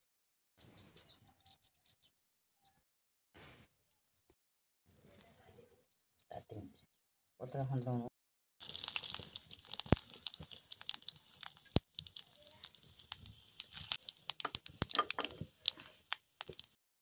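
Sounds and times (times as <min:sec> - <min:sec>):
sharp crackles and pops: 0:08.6 - 0:16.8
spices sizzling in hot oil: 0:08.6 - 0:16.8.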